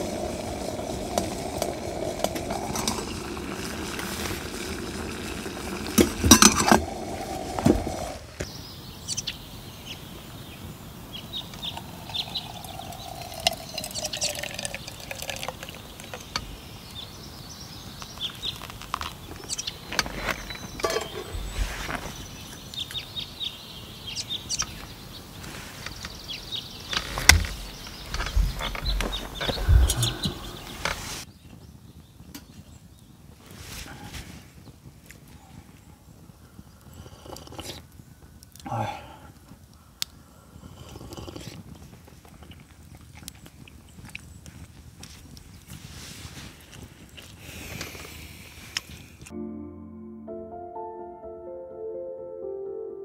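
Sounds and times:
kettle tone on stove: 0.0s - 8.2s, 20.2s - 21.6s
hot water pouring into metal mug: 0.0s - 8.4s, 11.4s - 17.0s
fire crackling: 0.0s - 49.3s
cookware clinking and knocking: 20.8s - 21.3s.

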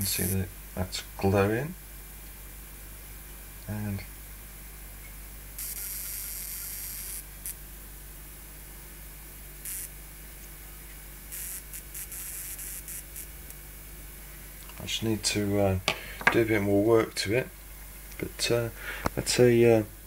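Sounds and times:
electric spark arcing: 5.6s - 7.6s, 9.6s - 10.0s, 11.2s - 13.6s.

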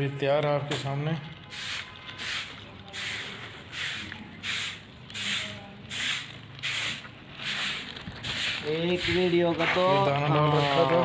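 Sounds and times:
paper packet shaken rustling: 7.3s - 11.0s.

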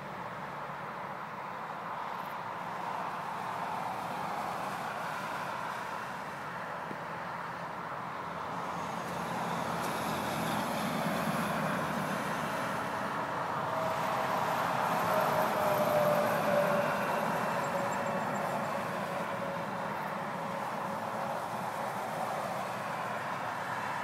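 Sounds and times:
highway traffic rushing: 0.0s - 24.0s
vehicle whine passing by: 8.4s - 24.0s.

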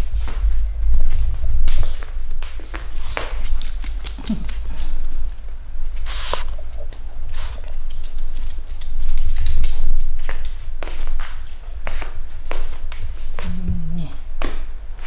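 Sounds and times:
microphone rubbing on fur: 13.3s - 14.2s.

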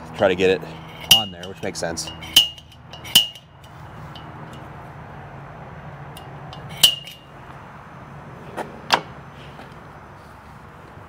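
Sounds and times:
low steady hum: 0.0s - 8.2s
tools ticking and tapping: 0.7s - 4.8s, 6.1s - 7.3s
metallic clink with ringing: 0.8s - 4.7s, 6.2s - 7.3s.

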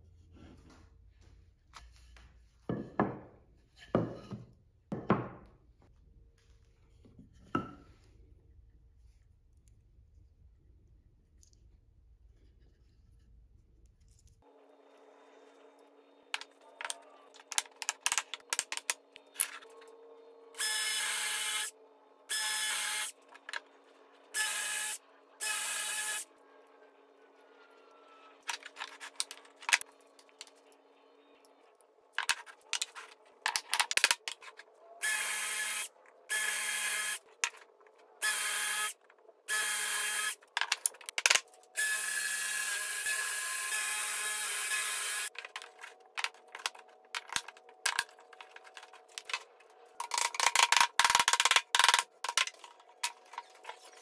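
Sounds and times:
drill boring into wood: 20.6s - 21.7s, 35.0s - 37.2s, 38.2s - 38.9s, 39.5s - 40.4s, 41.8s - 45.3s.

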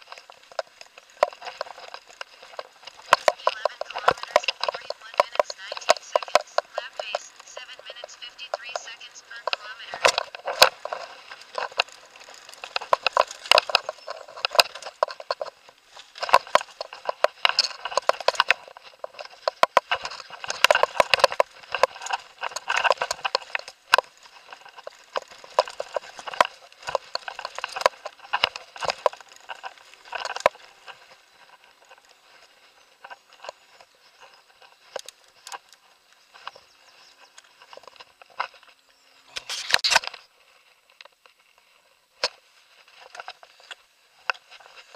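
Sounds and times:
helmet camera mount rattling: 10.1s - 31.2s.

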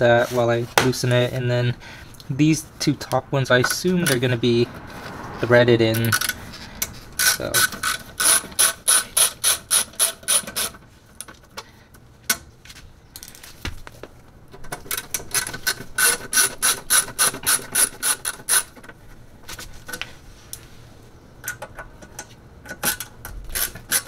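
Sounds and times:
ratcheting screwdriver clicking: 7.2s - 10.8s.

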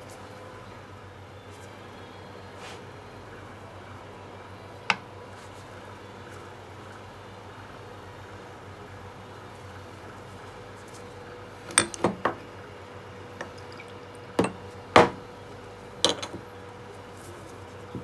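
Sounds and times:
faint steady hum: 0.0s - 18.0s
liquid pouring: 13.2s - 14.8s
glass bottle clinking on cup: 13.4s - 15.2s, 16.0s - 16.4s.

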